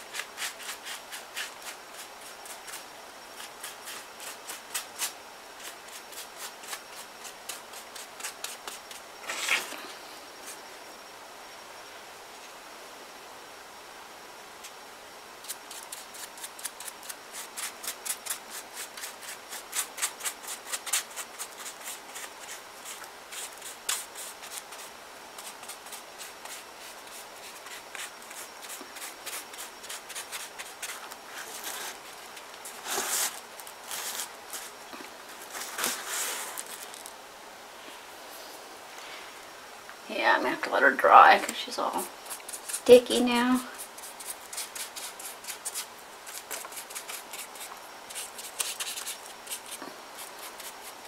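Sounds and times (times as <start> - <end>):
paper rustling: 27.7 - 37.2
paintbrush scratchy strokes: 43.8 - 51.0.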